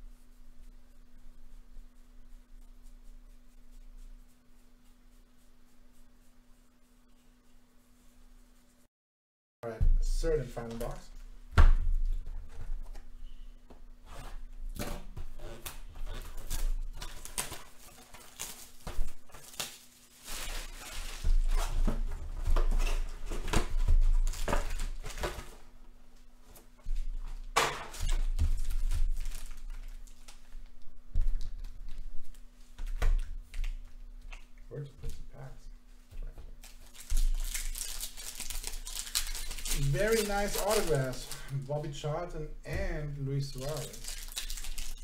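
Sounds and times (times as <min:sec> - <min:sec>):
wrapping tearing and crinkling: 0:15.4 - 0:22.0, 0:23.3 - 0:25.6, 0:27.4 - 0:30.8, 0:36.6 - 0:41.8, 0:43.5 - 0:45.0.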